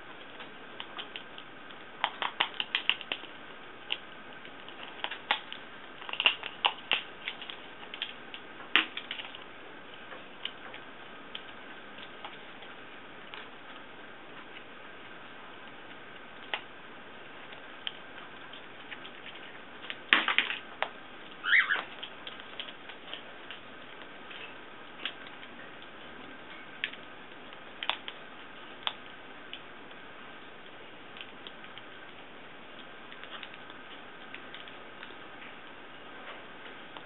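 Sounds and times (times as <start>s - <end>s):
parrot beak cracking nut shell: 2.0s - 3.3s, 4.6s - 9.4s.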